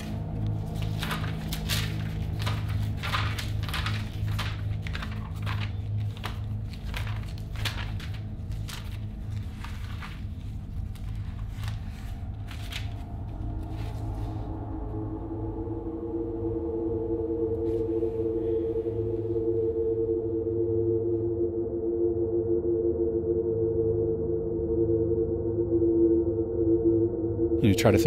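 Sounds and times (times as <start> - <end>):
pages flicking and rustling: 0.0 - 14.6
low music drone: 0.0 - 28.0.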